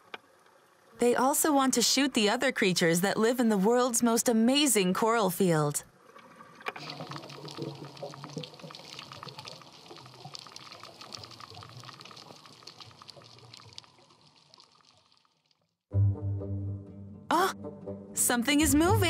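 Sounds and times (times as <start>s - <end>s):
crackle of small clicks underwater: 0.0s - 0.7s, 6.1s - 15.7s
bubbling gurgling water: 5.9s - 15.5s.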